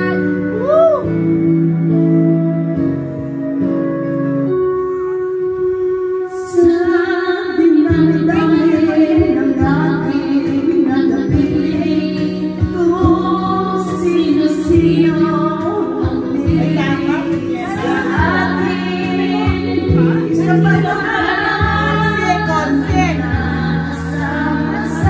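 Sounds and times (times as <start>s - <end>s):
woman singing into a microphone: 0.0s - 2.6s, 4.7s - 25.0s
karaoke backing track: 0.0s - 25.0s.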